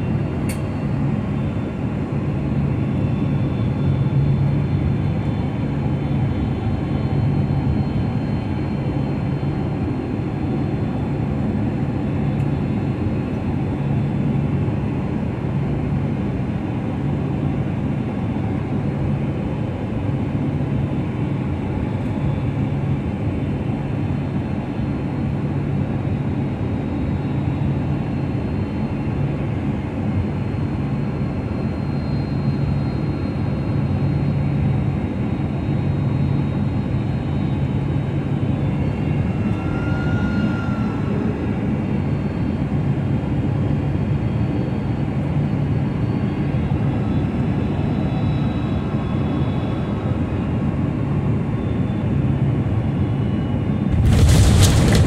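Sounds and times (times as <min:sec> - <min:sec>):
jet engines roaring: 0:53.6 - 0:55.0
low hum: 0:53.8 - 0:55.0
air rushing past fuselage: 0:53.9 - 0:55.0.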